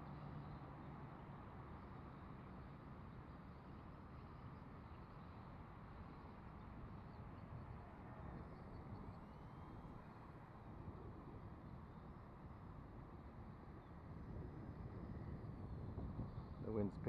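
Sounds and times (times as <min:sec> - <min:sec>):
wind rumble on microphone: 0:10.6 - 0:17.0.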